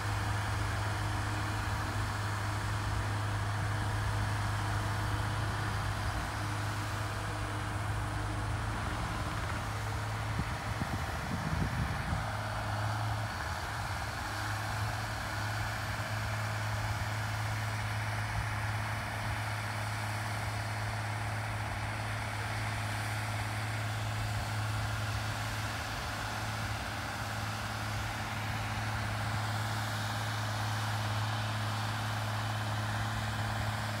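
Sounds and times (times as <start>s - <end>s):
diesel machinery engine running: 0.0s - 34.0s.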